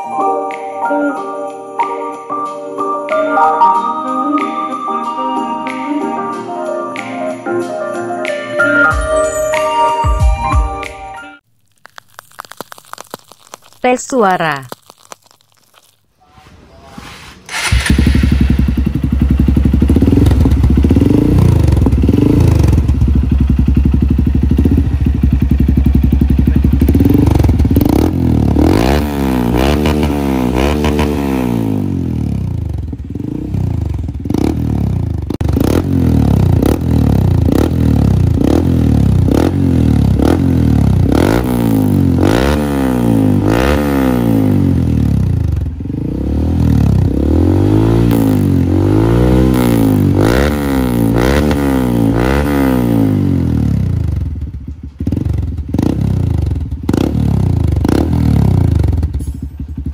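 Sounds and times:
motorcycle engine idling and revving: 17.5 - 59.9.

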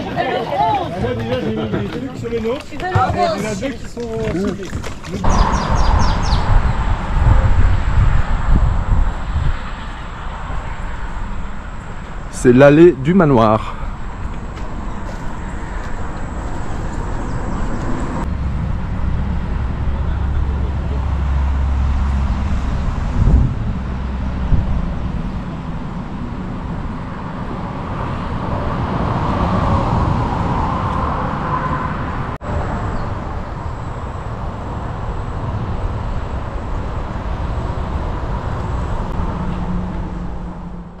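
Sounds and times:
car engine and tyre rumble: 4.0 - 41.0.

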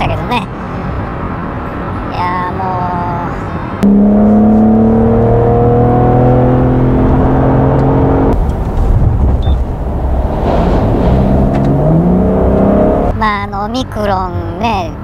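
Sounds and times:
car engine accelerating: 3.8 - 13.2.

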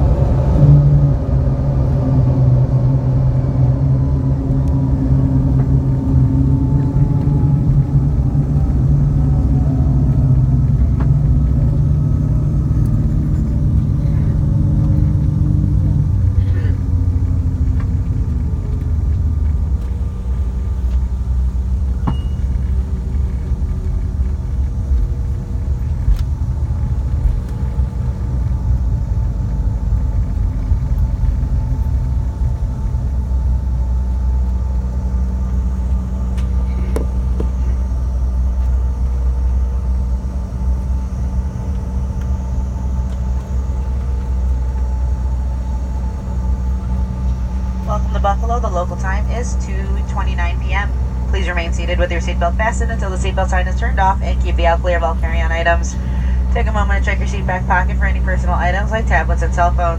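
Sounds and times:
jet cabin low rumble: 0.0 - 59.9
jet engines idling hum: 0.0 - 59.9.

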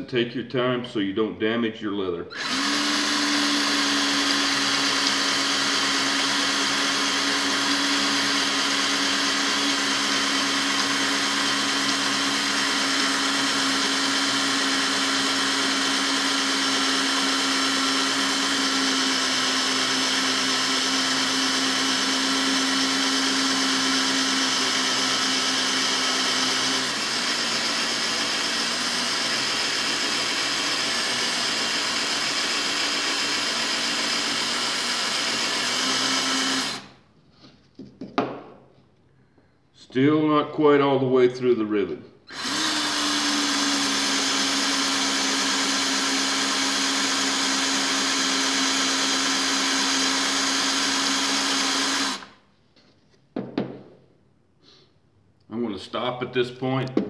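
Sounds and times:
cordless drill drilling: 2.3 - 37.0, 42.3 - 52.4.

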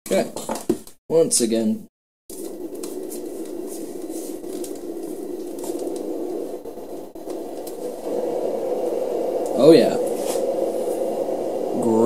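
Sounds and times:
white noise machine fan: 2.3 - 12.0.

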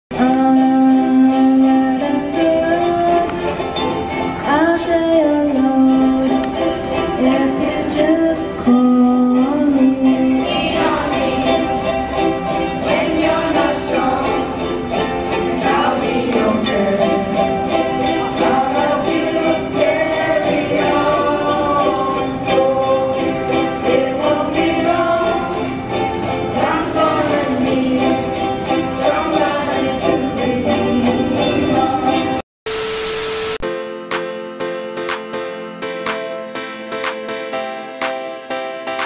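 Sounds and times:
girl singing into microphone: 0.1 - 3.4, 4.4 - 6.6, 7.2 - 11.5
children strumming ukuleles: 0.1 - 32.4.

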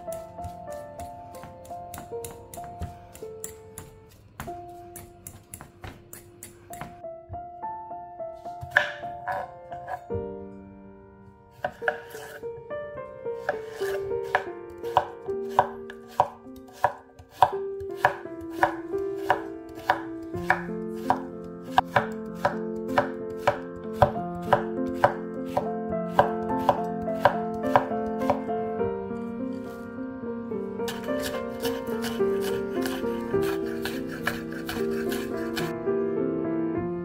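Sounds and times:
piano music: 0.0 - 37.0
knife chopping on wooden board: 0.1 - 7.0, 8.6 - 10.0, 11.6 - 12.4, 13.4 - 28.5, 30.9 - 35.7.

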